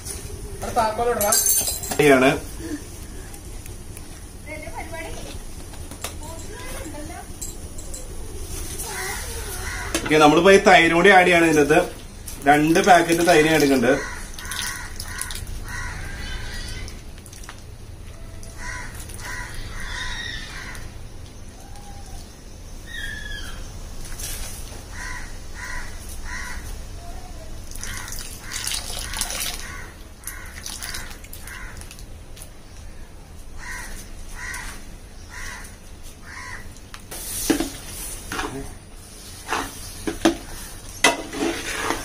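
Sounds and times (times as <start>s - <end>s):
crow cawing: 8.8s - 10.2s, 13.8s - 17.0s, 18.4s - 21.0s, 24.9s - 27.1s, 27.7s - 32.0s, 33.6s - 36.7s.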